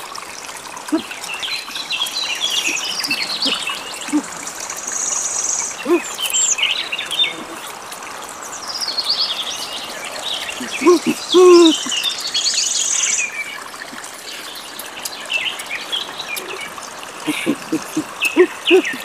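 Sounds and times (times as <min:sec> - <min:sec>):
wild birds chirping: 0:00.0 - 0:19.0
people eating mouth sounds: 0:10.1 - 0:12.0, 0:16.3 - 0:19.0.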